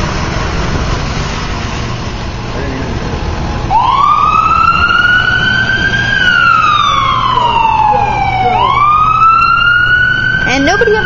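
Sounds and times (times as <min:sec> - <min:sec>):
ambulance siren wailing: 0:03.6 - 0:11.0.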